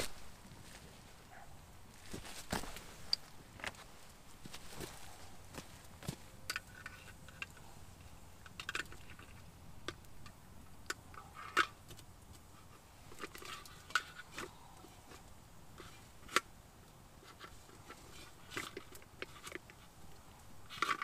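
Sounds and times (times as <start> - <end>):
wood fire crackling: 1.9 - 11.2.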